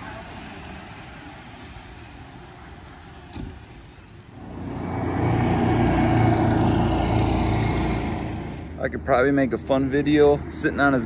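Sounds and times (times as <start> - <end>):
road noise: 0.0 - 11.0
vehicle engine passing by: 4.4 - 9.0.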